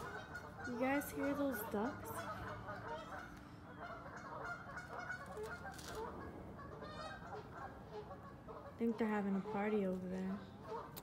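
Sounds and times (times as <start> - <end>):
waterfowl calling: 0.0 - 11.0.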